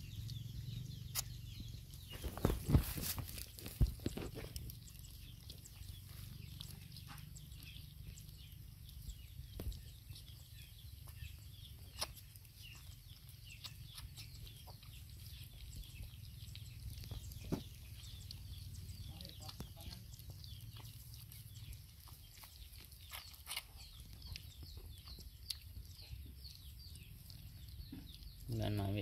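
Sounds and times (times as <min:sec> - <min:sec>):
low steady hum: 0:00.0 - 0:29.0
rustles on dry straw: 0:02.1 - 0:04.9.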